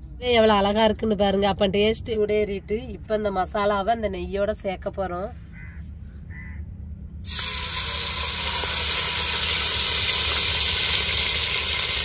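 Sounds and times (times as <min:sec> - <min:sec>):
spice sizzling in hot fat: 0:07.2 - 0:12.0.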